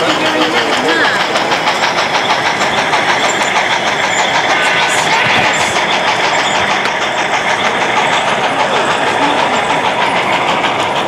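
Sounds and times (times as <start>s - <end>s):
model steam locomotive chuffing: 0.0s - 11.0s
busy hall crowd noise: 3.5s - 11.0s.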